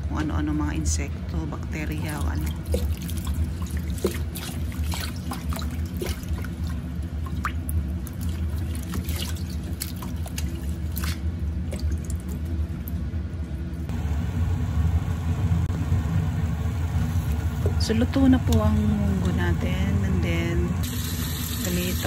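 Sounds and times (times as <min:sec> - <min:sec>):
steady low hum: 0:00.0 - 0:22.0
water dripping and trickling: 0:02.1 - 0:13.0.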